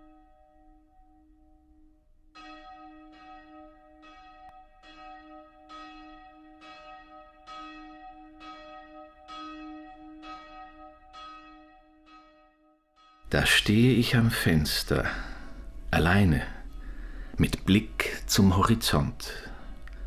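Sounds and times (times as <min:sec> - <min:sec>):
church bell ringing: 0:00.0 - 0:19.8.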